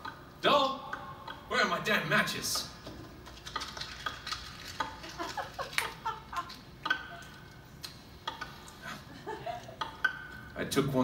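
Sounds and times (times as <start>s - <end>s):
matchbox clicks and rattles: 3.3s - 6.6s.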